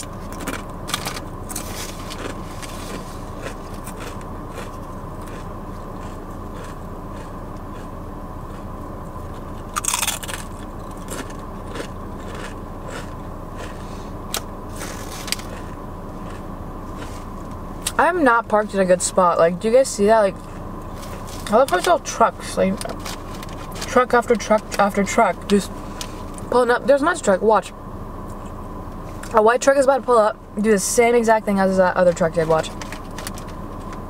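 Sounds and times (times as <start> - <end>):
crunching chips: 0.0 - 17.2
low background hum: 0.0 - 34.0.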